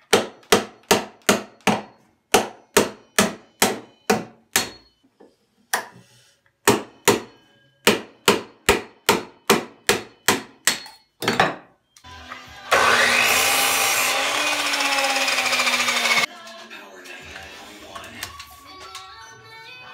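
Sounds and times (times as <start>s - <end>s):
miter saw motor whine: 12.7s - 16.3s.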